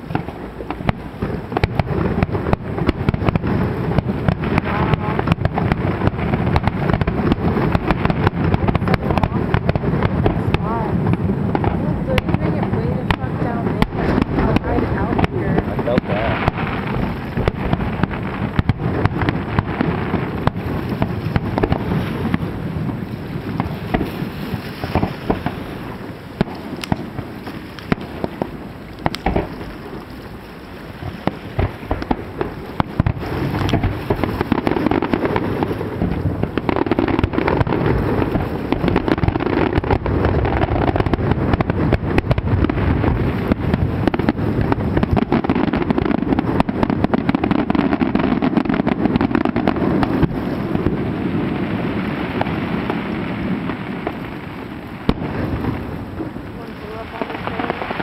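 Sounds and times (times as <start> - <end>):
continuous rumble: 0.0 - 24.3
fireworks bangs: 0.0 - 58.0.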